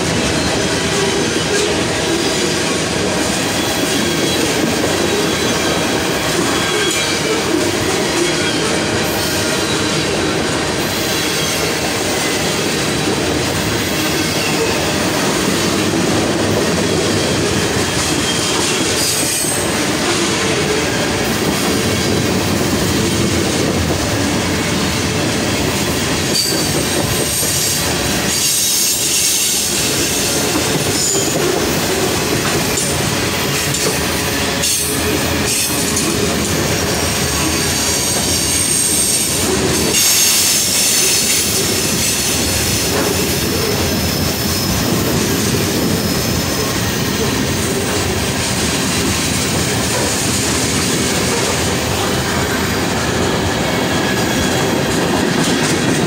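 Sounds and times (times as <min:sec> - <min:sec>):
freight train wheels rumbling: 0:00.0 - 0:56.0
high wheel squeal: 0:03.4 - 0:10.2, 0:25.9 - 0:31.4, 0:34.3 - 0:47.9.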